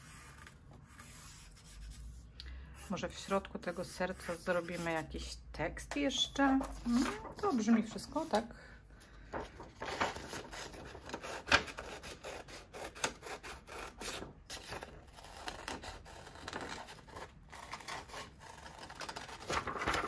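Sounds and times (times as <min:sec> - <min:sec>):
paper rubbing and scraping: 0:00.0 - 0:05.2, 0:09.3 - 0:20.0.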